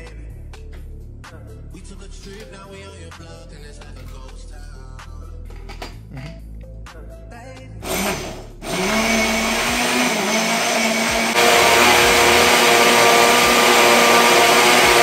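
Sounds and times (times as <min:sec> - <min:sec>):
electric blender running: 0:07.8 - 0:15.0.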